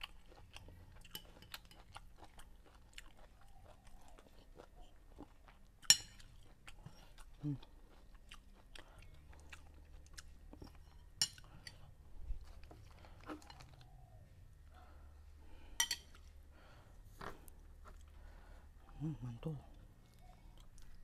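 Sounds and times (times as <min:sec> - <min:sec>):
person chewing: 0:00.0 - 0:13.9, 0:17.1 - 0:21.0
metal spoon clinking on plates: 0:05.9 - 0:06.2, 0:15.8 - 0:16.1.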